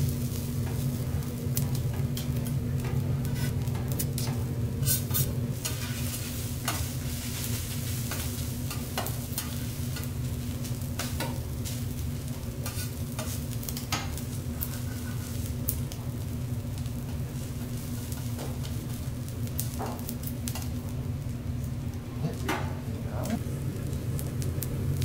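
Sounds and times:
rice sizzling on a griddle: 0.0 - 25.0
metal spatula scraping and tapping: 12.6 - 15.4.

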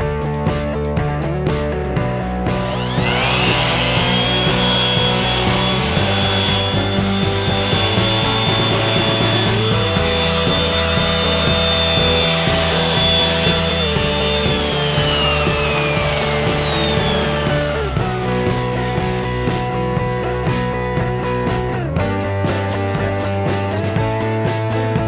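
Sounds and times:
background music: 0.0 - 25.0
orbital sander whine on steel: 2.5 - 21.8.

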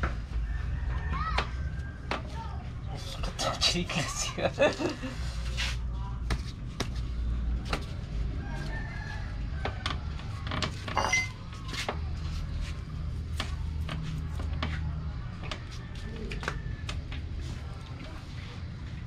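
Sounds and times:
rooster crowing: 0.3 - 2.1, 8.4 - 10.4.

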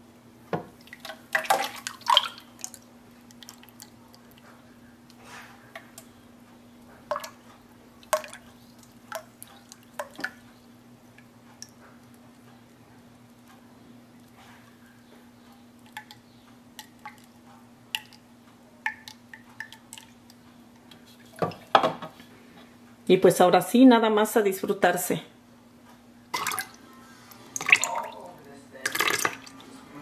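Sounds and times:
milk dripping into glass: 18.9 - 20.4.

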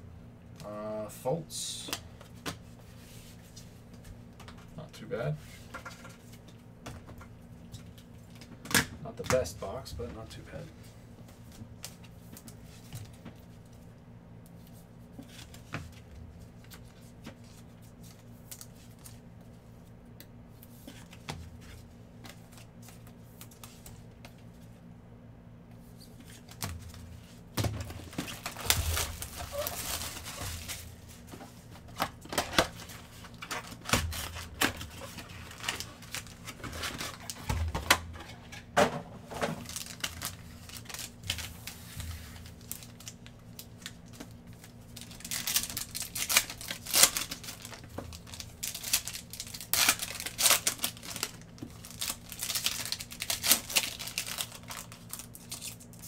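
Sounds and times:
packaging crinkling: 27.8 - 31.3, 31.9 - 37.5, 39.4 - 56.0.

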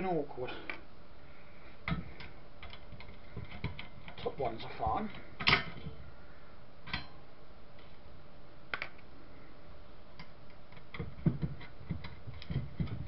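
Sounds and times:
clicks and knocks on metal case: 10.8 - 13.0.

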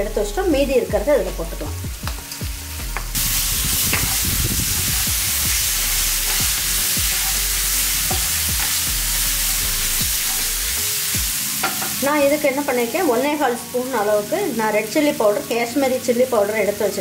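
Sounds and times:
vegetables sizzling in oil: 0.2 - 17.0
wooden spatula scraping a pan: 6.2 - 7.5.

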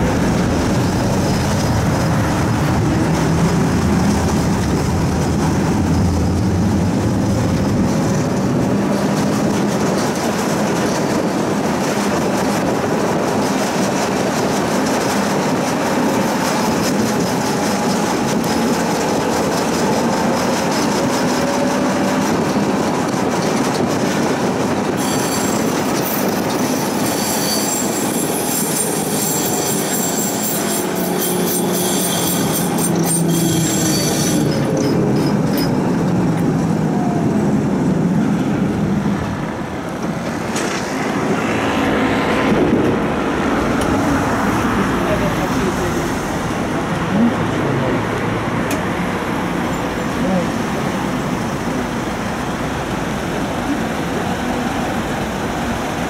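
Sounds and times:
tram wheels on rails: 0.0 - 56.0
high-pitched wheel squeal: 25.0 - 34.6.

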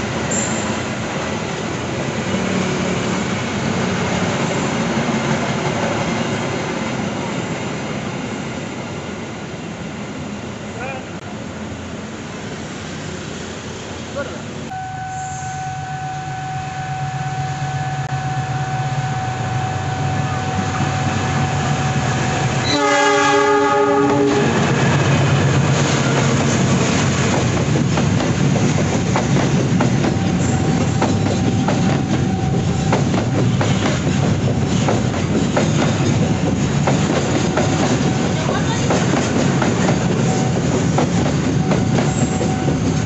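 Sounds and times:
steady high tone: 14.7 - 22.8
train horn blast: 14.7 - 24.6
locomotive engine rumble: 17.8 - 43.0
train wheels clattering over rail joints: 24.8 - 43.0.

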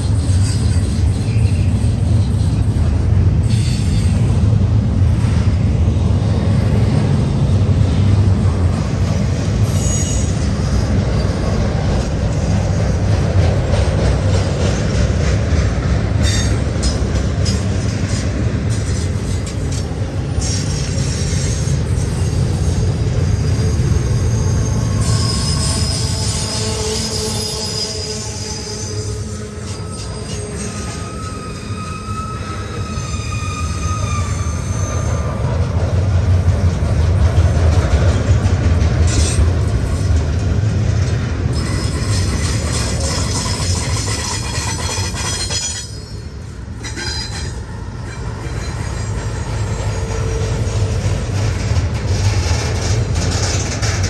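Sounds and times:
freight train rumbling: 0.0 - 54.0
high-pitched wheel squeal: 9.2 - 11.4, 17.5 - 35.4, 41.5 - 50.8.

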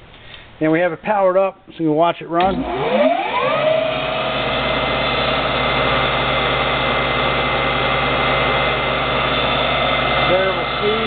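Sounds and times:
mill motor whining and humming: 2.4 - 11.0.

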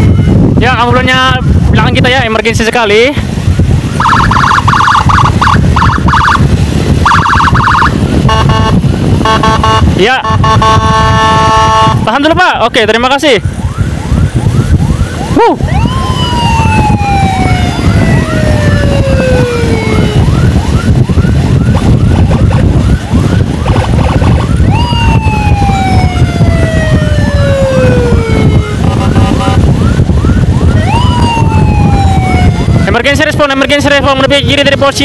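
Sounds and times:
emergency siren yelping and wailing: 0.0 - 1.8, 3.5 - 35.0
wind: 0.0 - 35.0
motorcycle engine rumble: 13.4 - 33.0.

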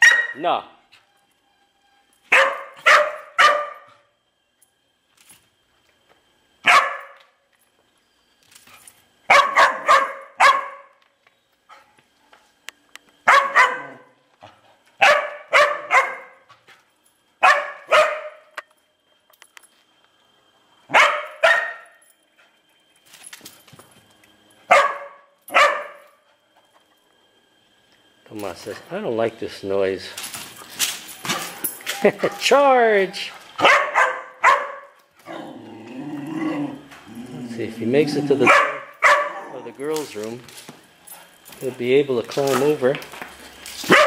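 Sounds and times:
dog barking: 0.0 - 0.4, 2.3 - 4.0, 6.6 - 7.2, 9.3 - 10.9, 13.2 - 14.2, 15.0 - 16.4, 17.4 - 18.4, 20.9 - 21.9, 24.7 - 26.0, 33.6 - 35.0, 38.4 - 39.6.

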